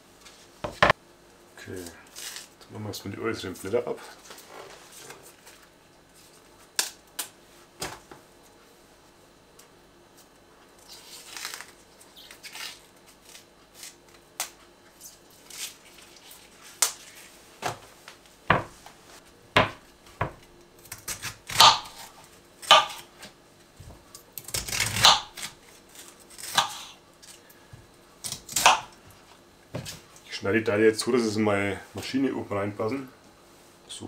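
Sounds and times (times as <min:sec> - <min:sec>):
cabbage leaves snapping and crackling: 0:10.8 - 0:17.2, 0:24.2 - 0:27.6, 0:28.2 - 0:29.0.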